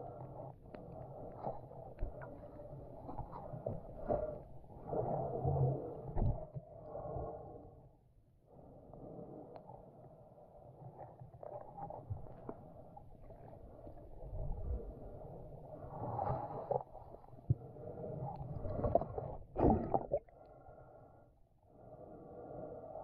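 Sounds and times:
underwater water gurgling: 11.7 - 20.5.

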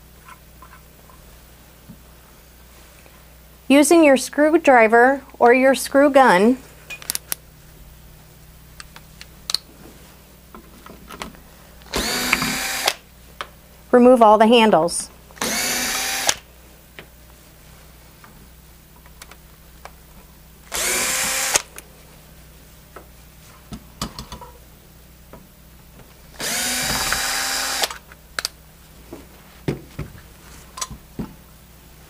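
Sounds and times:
clicks and knocks of parts handled: 6.9 - 7.4
cordless screw gun running: 11.9 - 13.0, 15.4 - 16.4, 20.7 - 21.8, 26.4 - 28.0.

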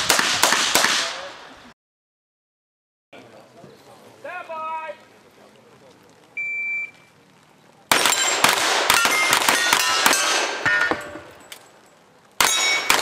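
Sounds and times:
revolvers firing: 0.0 - 1.4, 7.9 - 11.6, 12.4 - 13.0
steel plate targets ringing: 8.0 - 11.6, 12.4 - 13.0.

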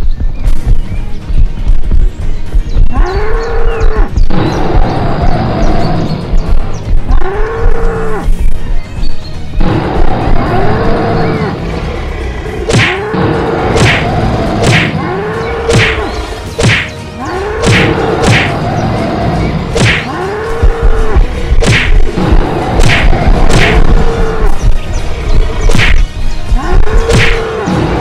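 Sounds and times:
sharp whacks: 12.7 - 13.0, 13.7 - 15.0, 15.7 - 16.0, 16.6 - 17.0, 17.6 - 18.6, 19.8 - 20.1, 21.6 - 22.2, 22.8 - 24.0, 25.7 - 26.1, 27.1 - 27.5.

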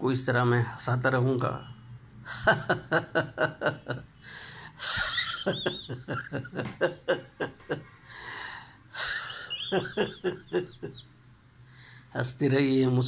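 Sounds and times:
man laughing: 2.3 - 4.1, 4.8 - 7.9, 9.0 - 11.1
breathy gasps: 4.2 - 4.9, 8.0 - 9.2.

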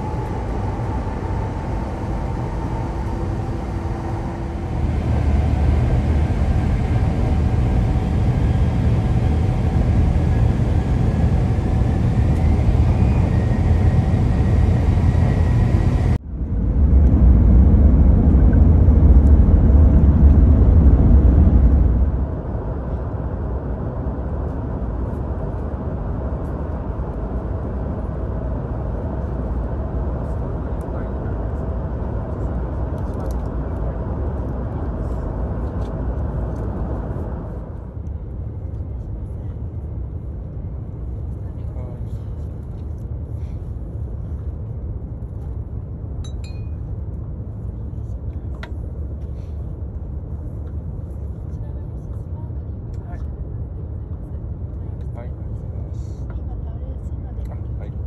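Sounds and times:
cabin hum: 0.0 - 33.0
train running at speed: 0.0 - 58.0.

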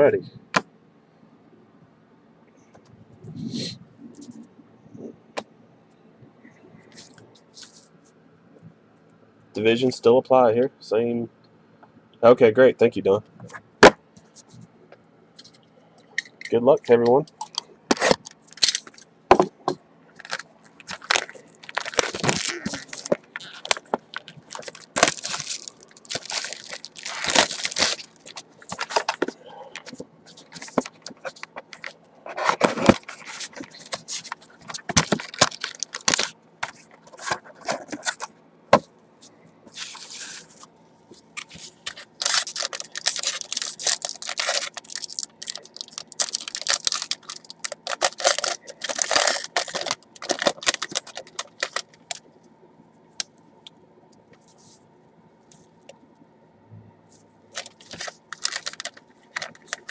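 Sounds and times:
cardboard scraping: 20.2 - 38.3, 39.7 - 40.7
plastic wrap crinkling and tearing: 20.2 - 38.3, 41.4 - 52.2, 57.5 - 59.9.

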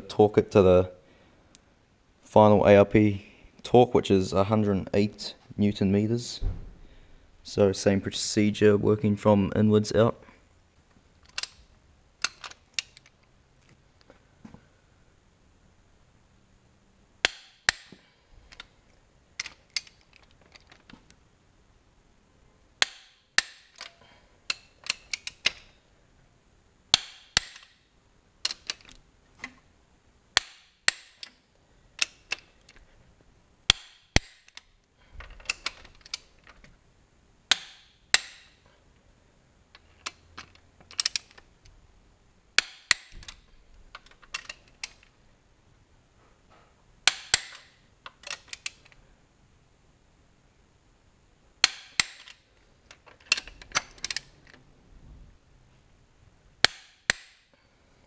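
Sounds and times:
wrench ratcheting: 22.8 - 25.7.

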